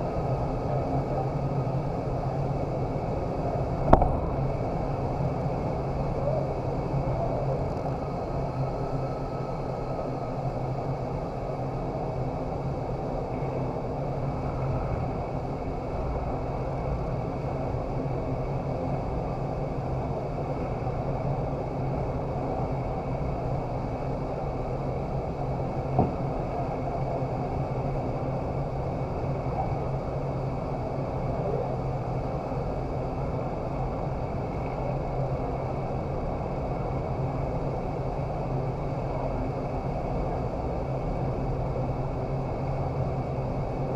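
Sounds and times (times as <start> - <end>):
low fan hum: 0.0 - 43.9
rush of air: 3.8 - 5.2.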